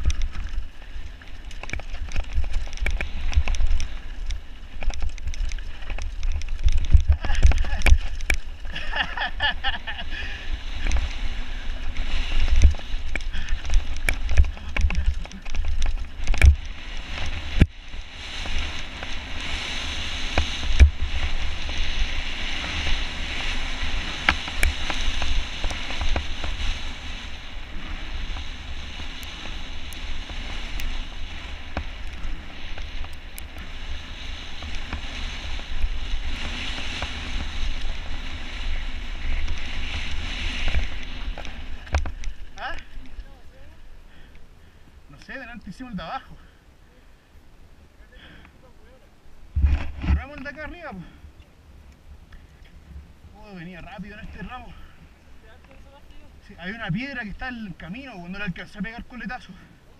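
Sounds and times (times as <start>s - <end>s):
bike knocking on stones: 0.0s - 8.8s, 12.4s - 17.8s, 39.3s - 42.8s
wind buffeting microphone: 0.0s - 44.3s.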